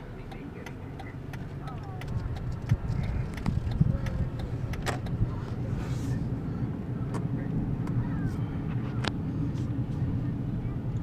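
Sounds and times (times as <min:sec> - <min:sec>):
car engine and tyres rumbling: 0:00.0 - 0:11.0
sharp clicks: 0:00.3 - 0:05.2.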